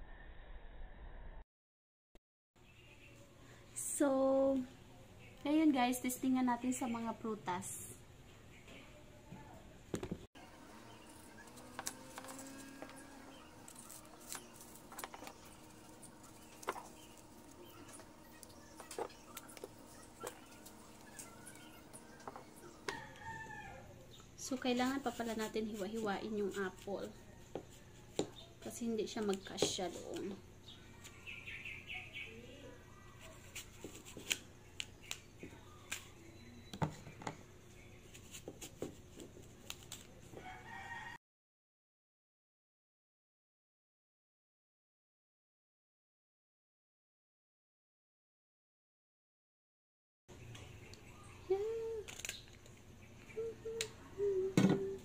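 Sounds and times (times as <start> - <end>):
knife cutting apple: 11.3 - 23.2, 33.2 - 36.2.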